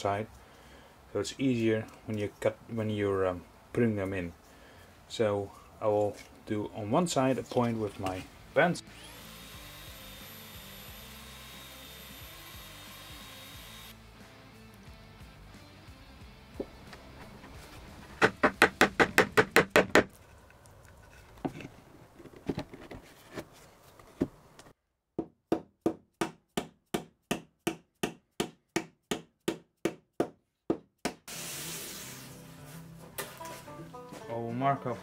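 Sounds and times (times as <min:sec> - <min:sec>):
mallet knocking wooden wedges: 0:18.2 - 0:20.1
short hiss: 0:31.3 - 0:32.7.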